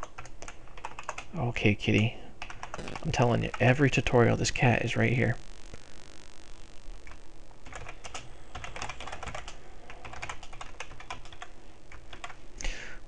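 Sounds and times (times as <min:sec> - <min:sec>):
typing on computer keyboard: 0:00.0 - 0:01.3, 0:02.4 - 0:02.8, 0:07.6 - 0:11.5, 0:12.1 - 0:12.4.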